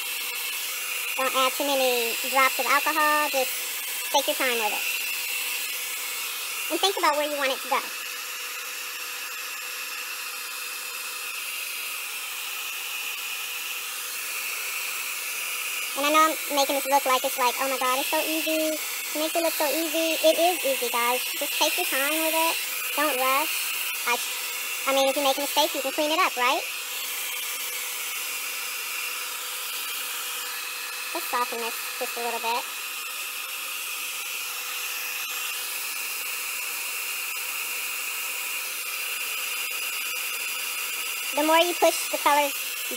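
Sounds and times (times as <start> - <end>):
blow dryer running: 0.0 - 42.9.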